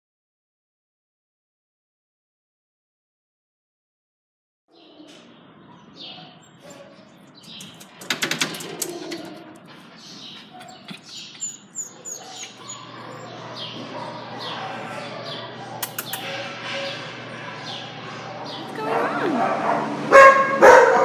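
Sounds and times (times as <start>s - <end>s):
small birds chirping: 4.7s - 19.3s
sharp clicks: 7.4s - 9.3s, 15.8s - 16.3s.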